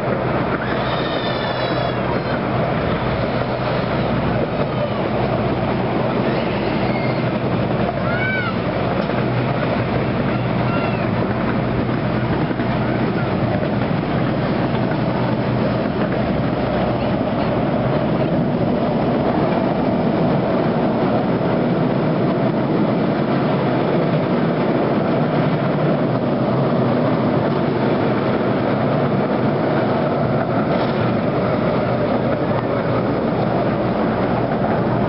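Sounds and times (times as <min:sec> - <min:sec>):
train wheels rattling on rails: 0:00.0 - 0:35.0.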